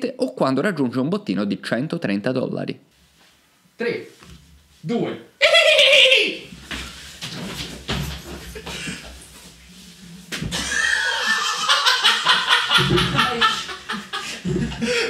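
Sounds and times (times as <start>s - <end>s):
people shouting: 5.4s - 6.5s
group of people laughing: 10.5s - 15.0s.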